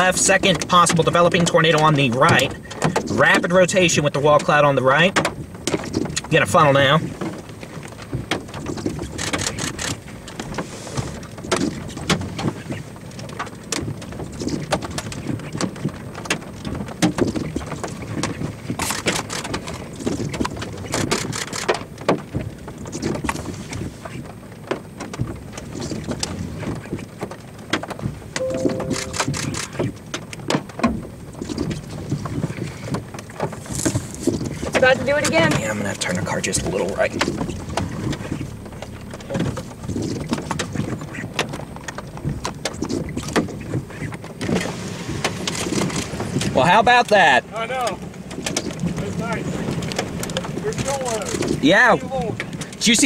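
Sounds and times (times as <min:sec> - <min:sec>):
raindrops tapping on car: 0:00.0 - 0:28.4, 0:29.3 - 0:53.0
brief hum: 0:28.4 - 0:29.8.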